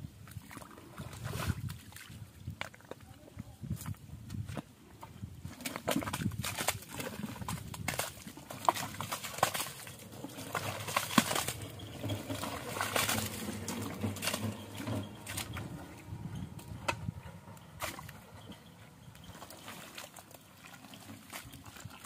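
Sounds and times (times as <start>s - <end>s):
hands squelching in wet mud: 5.5s - 14.5s.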